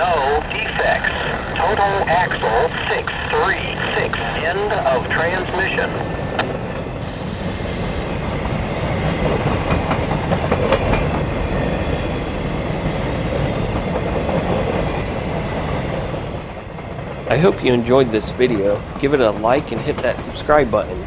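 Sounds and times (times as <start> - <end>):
freight train wheels rumbling: 0.0 - 21.0
clickety-clack of train wheels: 6.3 - 21.0.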